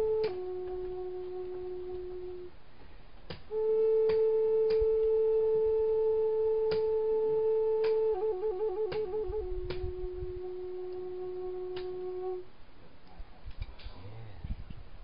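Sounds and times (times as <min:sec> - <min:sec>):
flute-like held notes: 0:00.0 - 0:02.6, 0:03.3 - 0:12.5.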